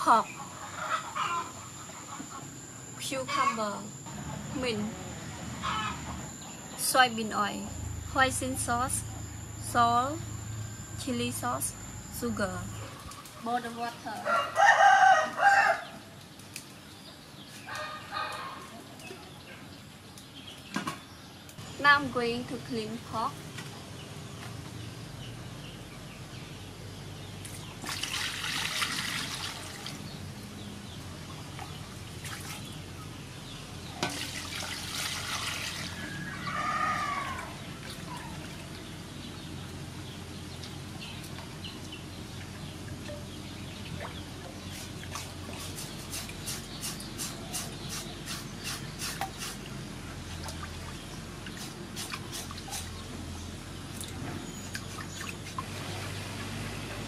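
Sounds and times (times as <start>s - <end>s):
water splashing in a metal basin: 27.5s - 30.1s, 31.6s - 32.8s, 33.9s - 36.2s
rushes of water: 34.1s - 36.1s.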